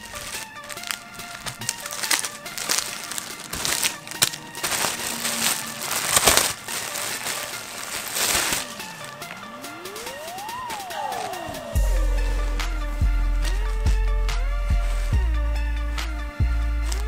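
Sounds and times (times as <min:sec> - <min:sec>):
plastic packaging crinkling: 0:00.0 - 0:11.8
faint background music: 0:00.0 - 0:17.0.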